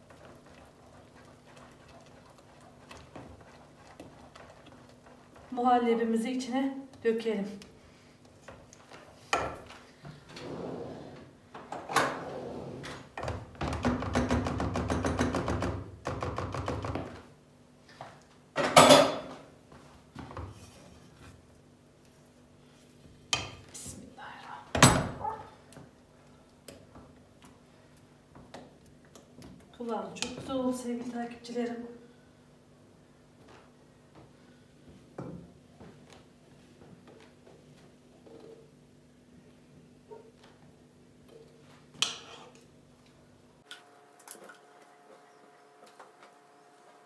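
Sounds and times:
whisk stirring pudding in a pot: 0:00.0 - 0:07.0.

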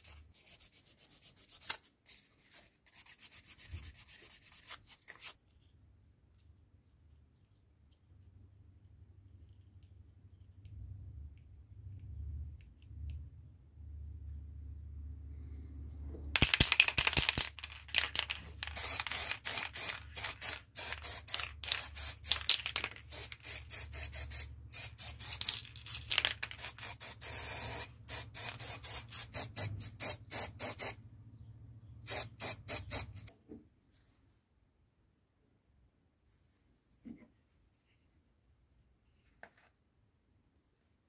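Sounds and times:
spray paint can hissing: 0:16.4 - 0:31.0, 0:32.0 - 0:33.3.

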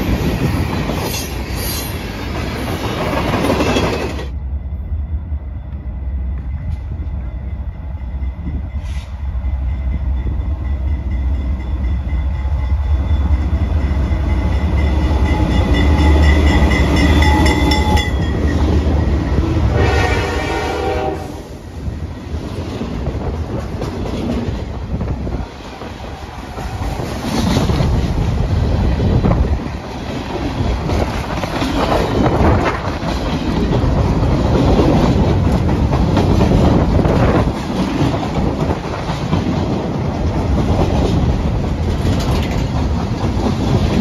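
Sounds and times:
train wheels clacking on rail joints: 0:00.0 - 0:04.4, 0:22.8 - 0:44.0
diesel locomotive engine rumble: 0:00.0 - 0:44.0
train horn blast: 0:19.5 - 0:21.6.

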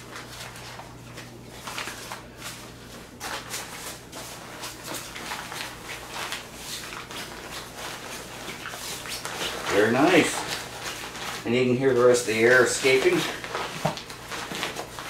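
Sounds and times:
nylon sleeping pad rustling: 0:01.5 - 0:15.0.

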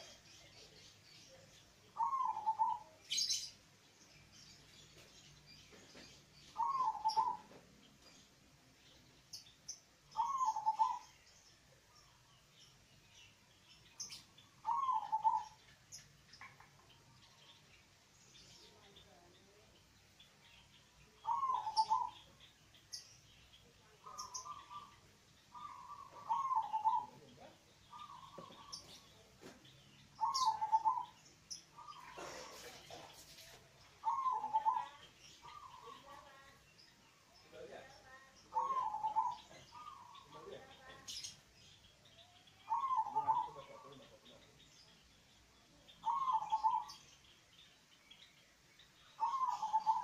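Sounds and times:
dove cooing: 0:02.0 - 0:03.0, 0:06.6 - 0:07.6, 0:10.2 - 0:11.0, 0:14.6 - 0:15.6, 0:21.2 - 0:22.2, 0:24.1 - 0:27.3, 0:27.9 - 0:28.9, 0:30.2 - 0:31.2, 0:31.8 - 0:33.0, 0:34.0 - 0:36.2, 0:38.5 - 0:40.3, 0:42.6 - 0:43.8, 0:46.0 - 0:46.9, 0:49.2 - 0:50.0.

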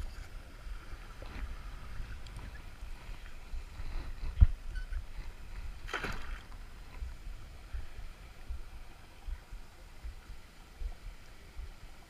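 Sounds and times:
low microphone rumble: 0:00.0 - 0:12.0
water sloshing and splashing: 0:05.5 - 0:07.1.

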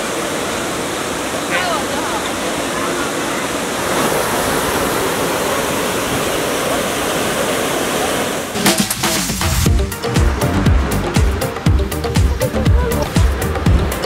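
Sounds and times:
fountain water cascading: 0:00.0 - 0:14.0
music with a beat: 0:08.6 - 0:14.0.

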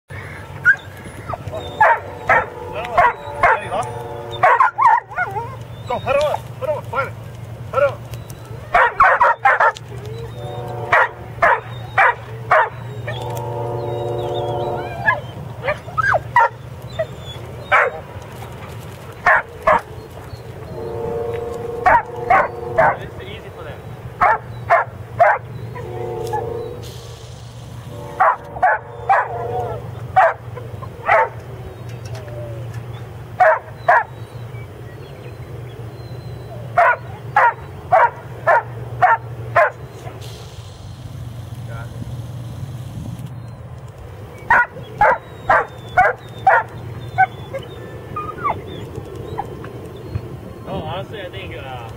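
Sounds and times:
steady low hum: 0:00.1 - 0:51.9
steady droning tone: 0:00.2 - 0:04.8
dog barking: 0:01.4 - 0:05.6, 0:08.7 - 0:09.8, 0:10.9 - 0:13.2, 0:15.0 - 0:18.0, 0:19.2 - 0:19.9, 0:21.8 - 0:23.0, 0:24.2 - 0:26.4, 0:28.2 - 0:29.6, 0:30.2 - 0:31.4, 0:33.4 - 0:34.1, 0:36.8 - 0:39.8, 0:44.5 - 0:47.7.

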